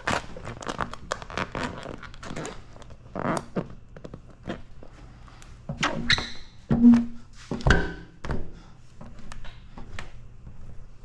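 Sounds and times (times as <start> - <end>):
plastic film squeaks and crinkles: 0.0 - 4.6
faint steady hum: 0.0 - 11.0.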